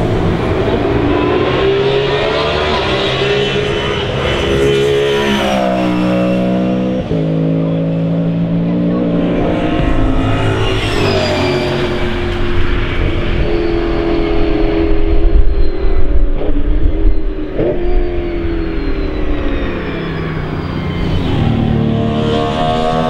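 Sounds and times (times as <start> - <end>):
race car engine revving: 0.0 - 15.7, 16.4 - 23.0.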